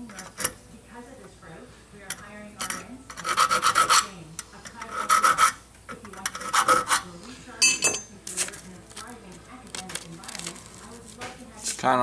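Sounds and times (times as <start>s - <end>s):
file rasping on steel: 3.1s - 4.1s, 4.8s - 5.6s, 6.2s - 7.1s.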